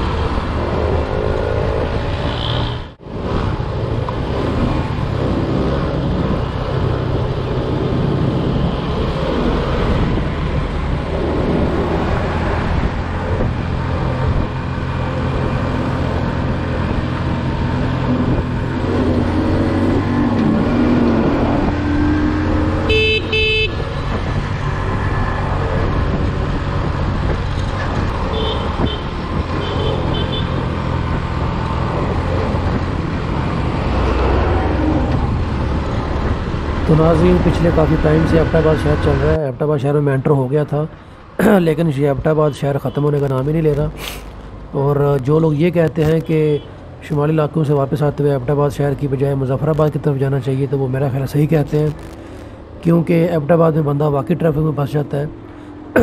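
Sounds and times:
road and traffic noise: 0.0s - 56.0s
vehicle horn honk: 22.9s - 23.8s, 28.3s - 30.6s.

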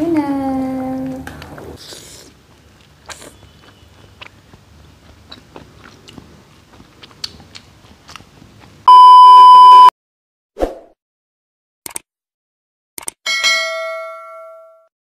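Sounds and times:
chewing and slurping: 1.1s - 8.8s
test-pattern beep: 8.9s - 9.9s.

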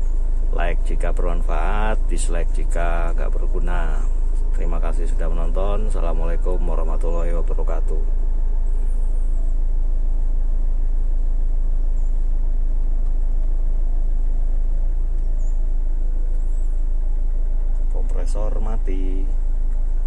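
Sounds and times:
air conditioning running: 0.0s - 20.0s
car engine idling: 0.0s - 20.0s.

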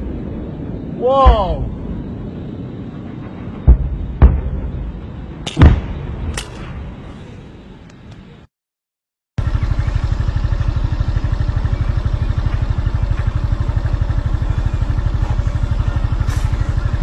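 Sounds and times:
motor running with rapid throb: 9.4s - 17.0s.

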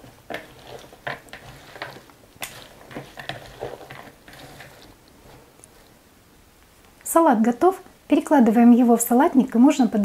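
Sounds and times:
salad stirred in a bowl: 0.0s - 6.0s.

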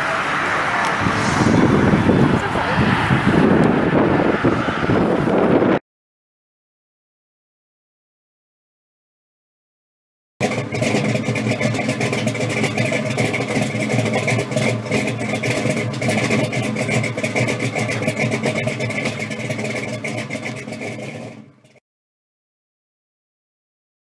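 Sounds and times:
car engine with crackling exhaust: 0.0s - 5.8s, 10.4s - 21.8s.

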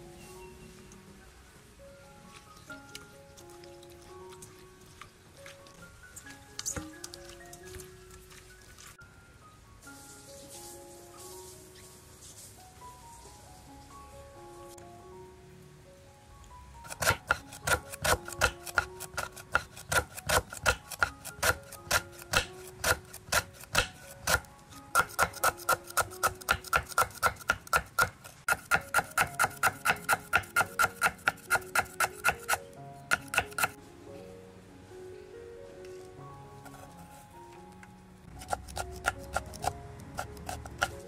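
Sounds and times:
soft background music: 0.0s - 41.0s
knife chopping on wooden board: 16.9s - 33.8s, 38.4s - 41.0s.

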